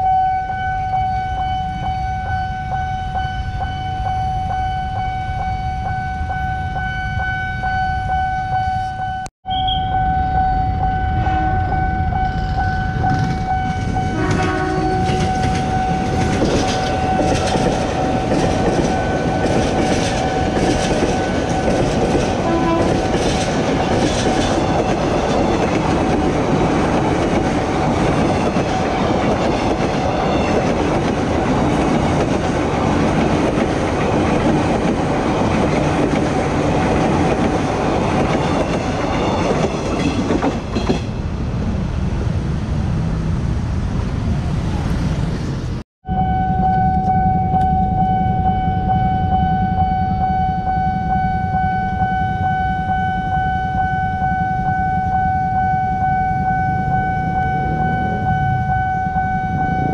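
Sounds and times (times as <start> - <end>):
crossing alarm warning tone: 0.0 - 41.1, 46.0 - 59.9
train wheels clattering: 12.3 - 41.2.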